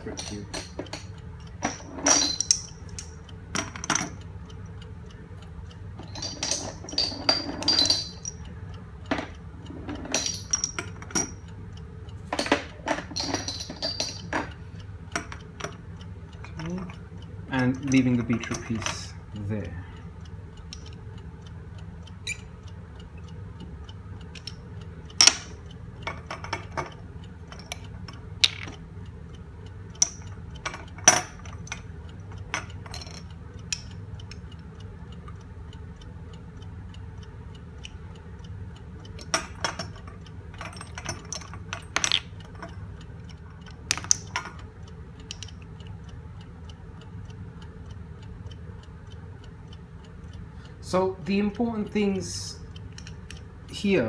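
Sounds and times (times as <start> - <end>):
clock ticking: 0.0 - 54.0
glass test tubes clinking: 0.1 - 3.2, 6.0 - 8.4, 10.2 - 11.4, 12.4 - 14.5, 28.4 - 28.8.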